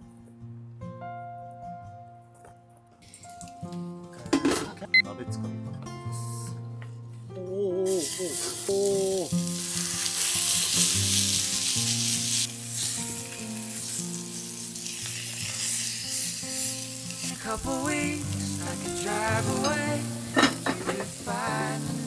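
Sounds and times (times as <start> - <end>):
patties sizzling in a skillet: 7.9 - 22.0.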